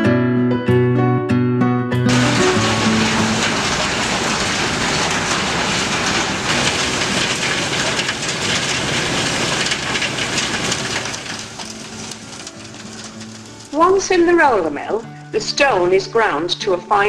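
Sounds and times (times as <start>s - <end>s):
conveyor machinery rattling: 2.1s - 15.0s.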